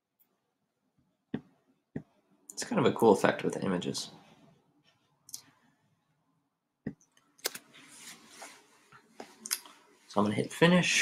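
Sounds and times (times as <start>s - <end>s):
soft rustle: 7.6s - 10.2s.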